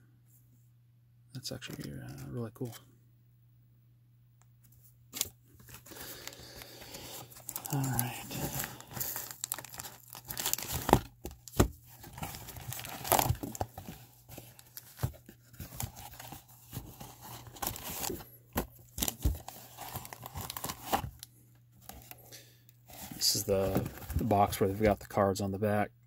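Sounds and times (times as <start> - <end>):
wax paper and cardboard rustling: 5.2 - 21.2, 22.9 - 25.2.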